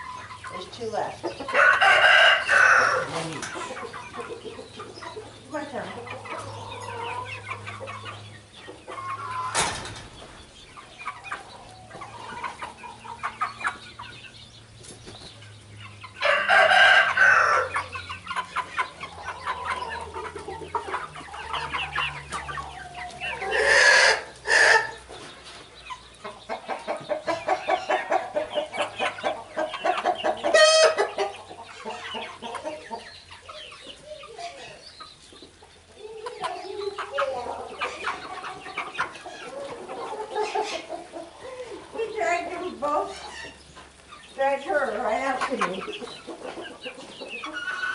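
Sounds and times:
loud chicken calls: 0:00.0 - 0:14.4, 0:15.9 - 0:47.9
chickens clucking: 0:00.0 - 0:47.9.

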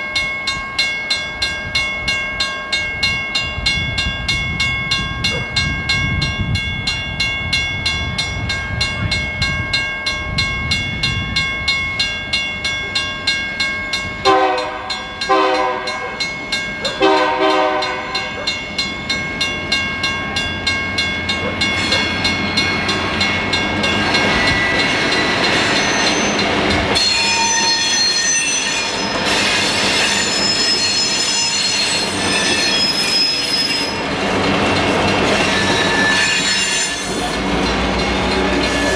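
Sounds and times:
bell ringing rapidly: 0:00.0 - 0:29.1
train rolling past: 0:00.0 - 0:38.9
locomotive air horn blasts: 0:14.2 - 0:16.2, 0:17.0 - 0:18.4
train wheels squealing: 0:23.8 - 0:38.9.

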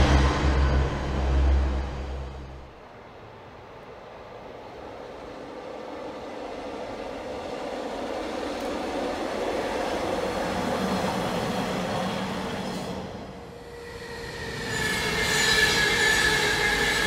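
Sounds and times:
diesel train passing: 0:00.0 - 0:17.0
train wheels on rails: 0:03.7 - 0:17.0.

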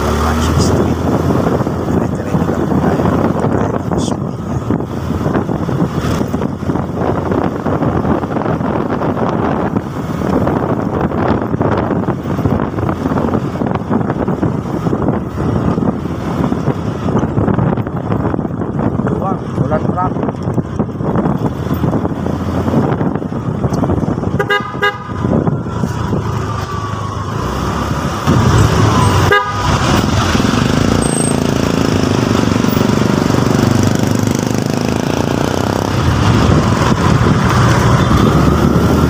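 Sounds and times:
motorcycle engine running: 0:00.0 - 0:39.0
road and wind noise: 0:00.0 - 0:39.0
horn toots: 0:24.3 - 0:25.3, 0:28.3 - 0:30.2.

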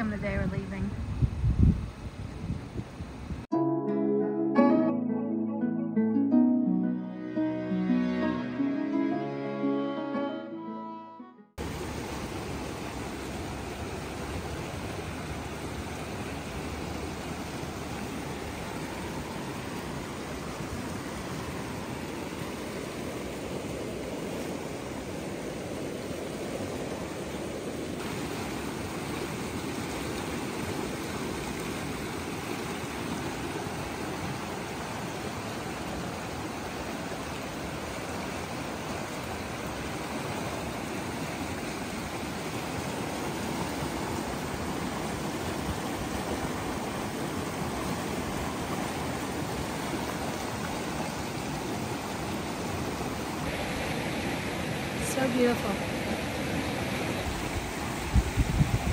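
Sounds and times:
river rushing over rocks: 0:11.6 - 0:58.9.

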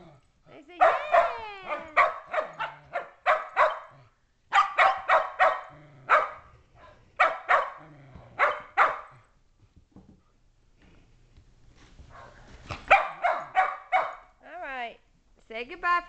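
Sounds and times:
dogs barking: 0:00.8 - 0:07.8, 0:08.4 - 0:09.2, 0:12.1 - 0:14.3.

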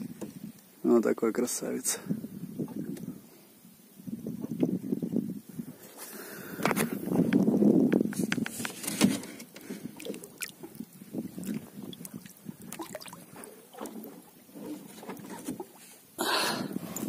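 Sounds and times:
water sloshing against boat hull: 0:06.6 - 0:17.0.

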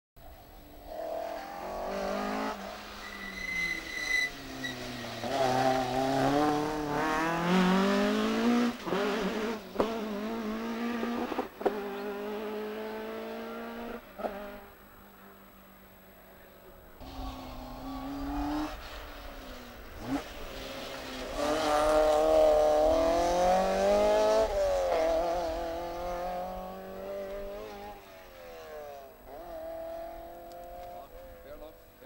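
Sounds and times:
rally car engine accelerating: 0:00.7 - 0:14.7, 0:17.0 - 0:31.7
brief high squeal: 0:03.0 - 0:04.9.

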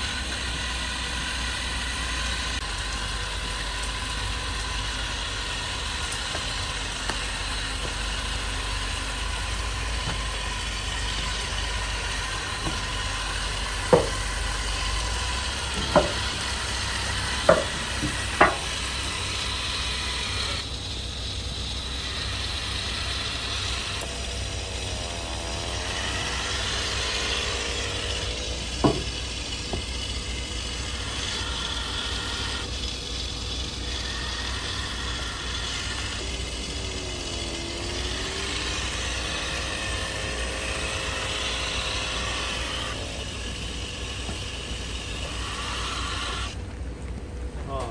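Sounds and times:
cleaning robot whirring: 0:00.0 - 0:46.8
sharp knocks: 0:13.8 - 0:14.2, 0:15.7 - 0:16.4, 0:17.4 - 0:18.7, 0:28.8 - 0:29.8.

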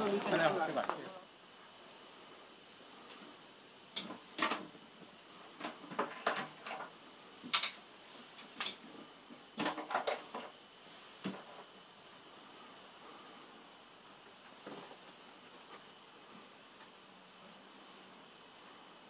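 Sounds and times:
curtain clicks and rustles: 0:03.9 - 0:04.8, 0:05.5 - 0:08.8, 0:09.6 - 0:10.6.

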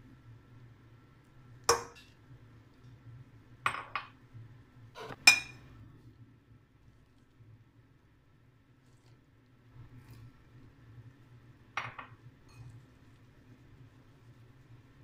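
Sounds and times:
glass bowl clinking: 0:01.7 - 0:02.1, 0:03.7 - 0:04.1, 0:05.2 - 0:05.6, 0:11.8 - 0:12.7.

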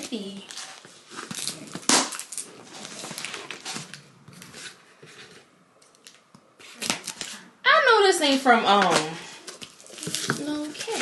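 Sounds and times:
tape and cardboard tearing: 0:00.0 - 0:04.8, 0:06.6 - 0:07.4.

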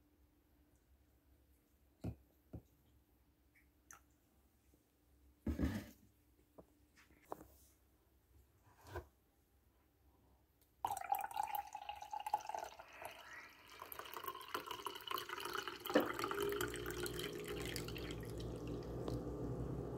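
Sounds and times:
coffee pouring into a mug: 0:10.8 - 0:19.9.

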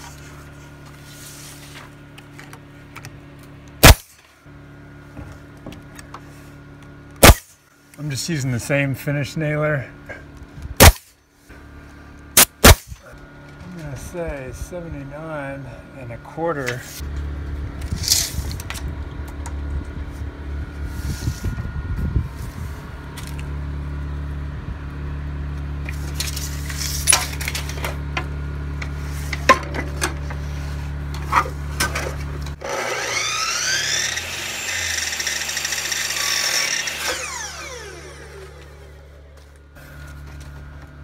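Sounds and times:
steady low hum: 0:00.0 - 0:41.0
miter saw whining: 0:32.3 - 0:40.7.

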